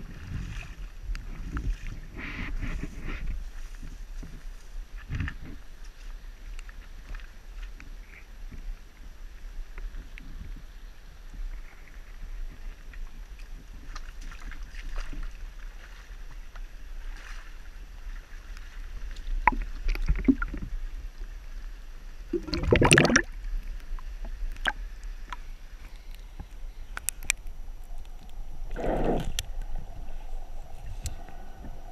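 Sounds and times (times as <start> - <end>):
water sloshing and splashing: 13.4 - 20.8, 22.3 - 25.5
camera splashing into water: 22.4 - 23.3.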